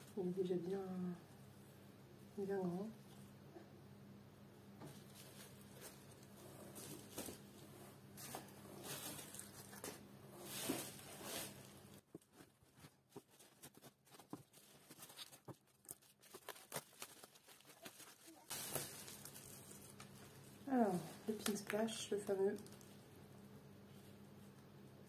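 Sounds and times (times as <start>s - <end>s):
bubble wrap and paper rustling: 4.8s - 23.1s.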